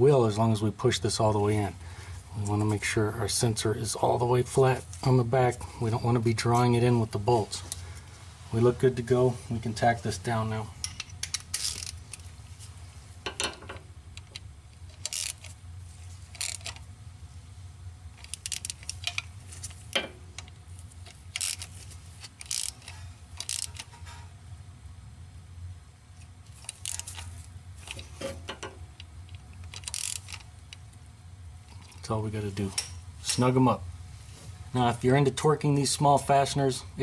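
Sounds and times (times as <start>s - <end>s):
steady low hum: 0.0s - 37.0s
hand ratchet clicking: 14.9s - 15.5s, 16.3s - 16.8s, 18.2s - 19.3s, 21.1s - 21.7s, 22.3s - 23.9s, 26.6s - 27.2s, 29.6s - 30.4s.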